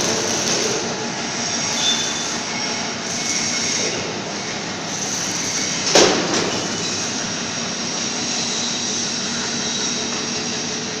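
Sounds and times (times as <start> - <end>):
electric gear motors running: 0.0 - 1.0.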